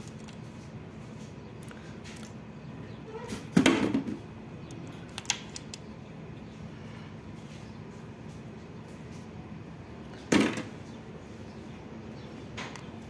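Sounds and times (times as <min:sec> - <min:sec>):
steady low hum: 0:00.0 - 0:13.0
sharp clicks: 0:04.6 - 0:05.9.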